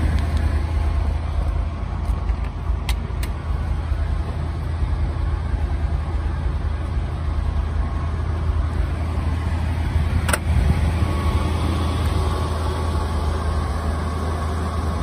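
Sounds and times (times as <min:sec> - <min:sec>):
pickup engine idling: 0:00.0 - 0:15.0.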